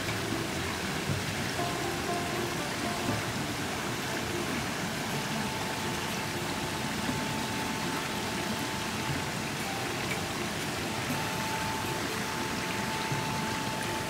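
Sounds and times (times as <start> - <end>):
water running over rocks: 0.0 - 14.0.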